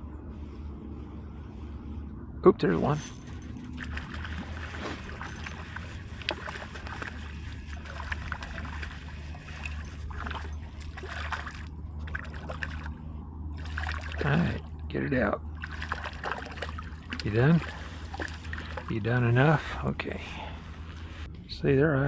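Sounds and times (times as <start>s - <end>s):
steady low rumble: 0.0s - 22.0s
fish splashing at water surface: 3.2s - 13.0s, 13.6s - 14.6s, 15.5s - 18.9s.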